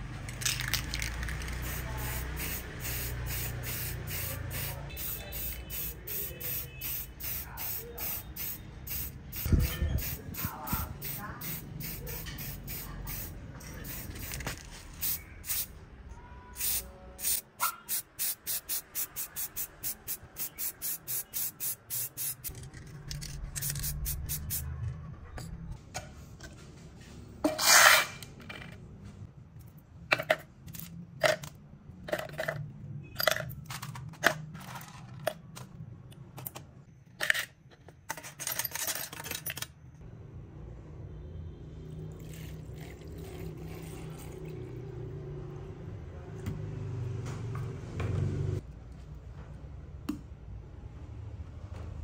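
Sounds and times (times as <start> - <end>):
metal parts clicking and clinking: 0.1 - 1.6, 22.4 - 24.4, 29.6 - 35.8, 36.4 - 39.9
metal parts clattering: 30.1 - 35.7, 37.1 - 39.8.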